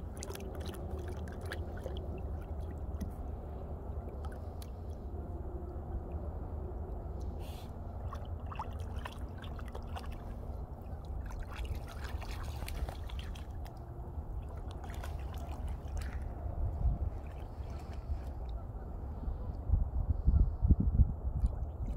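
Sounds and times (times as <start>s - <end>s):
dog splashing in water: 8.0s - 16.4s.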